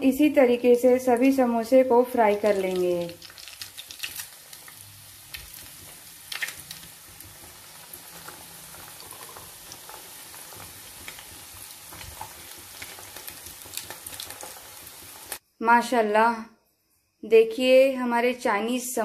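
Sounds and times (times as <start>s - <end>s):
food deep-frying in hot oil: 0.2s - 15.4s
oil crackling and popping: 2.1s - 15.4s.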